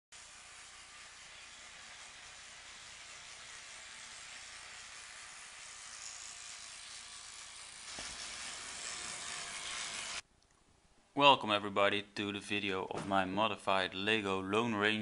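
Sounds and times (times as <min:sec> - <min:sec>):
steam hissing: 0:00.2 - 0:10.2.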